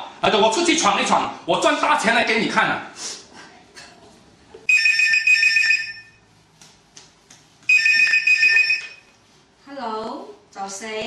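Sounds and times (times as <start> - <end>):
telephone ringing: 4.7 - 6.2, 7.7 - 9.2.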